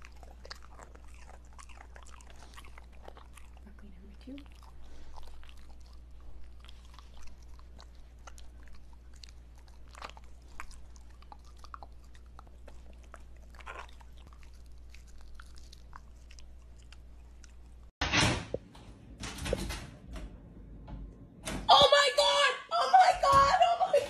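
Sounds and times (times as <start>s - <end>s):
dog crunching broccoli: 0.0s - 17.9s.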